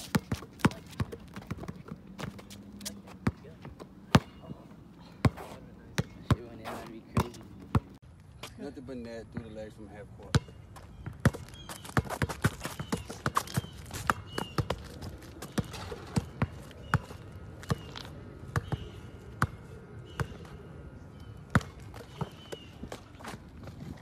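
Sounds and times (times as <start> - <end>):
basketball bouncing: 0.0 - 4.5, 5.2 - 8.0, 10.3 - 18.0.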